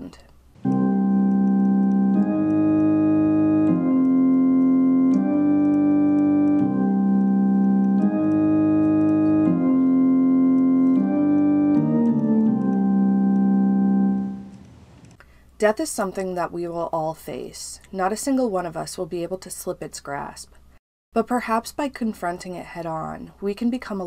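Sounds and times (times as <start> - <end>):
sustained organ chords: 0.6 - 15.0.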